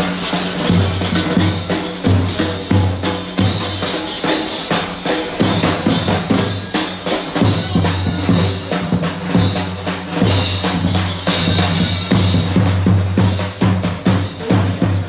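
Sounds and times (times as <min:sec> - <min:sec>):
bass drum beat: 0:00.0 - 0:15.0
marching brass band: 0:00.0 - 0:15.0
snare drum: 0:00.0 - 0:15.0.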